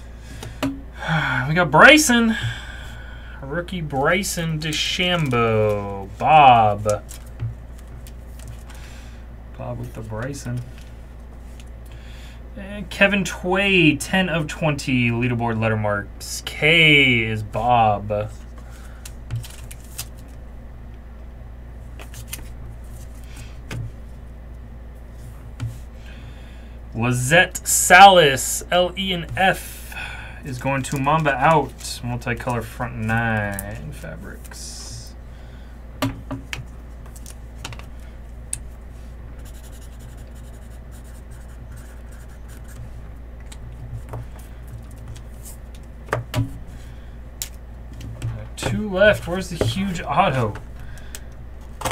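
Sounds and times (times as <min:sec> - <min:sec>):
steady low hum: 0:00.0 - 0:51.9
marker scratching on paper: 0:39.4 - 0:42.9.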